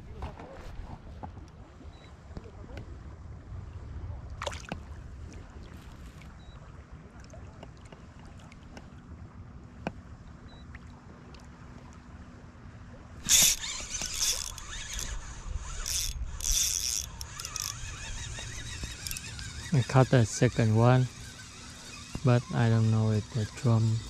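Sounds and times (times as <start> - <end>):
outdoor background noise: 0.0 - 24.0
fishing reel running: 13.2 - 24.0.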